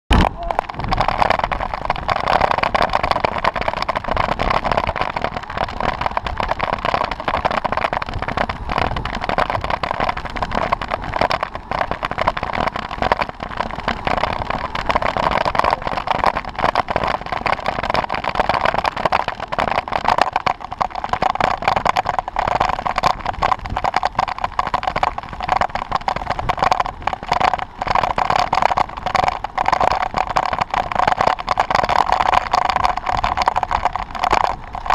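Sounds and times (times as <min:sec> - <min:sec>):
wind buffeting microphone: 0:00.1 - 0:18.0
tyre road noise: 0:00.1 - 0:34.9.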